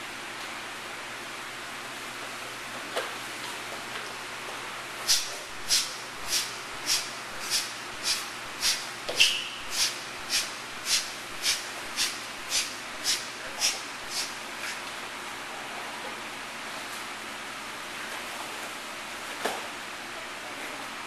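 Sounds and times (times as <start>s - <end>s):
steady hiss: 5.0s - 14.8s
forceful breaths through nose: 5.1s - 14.4s.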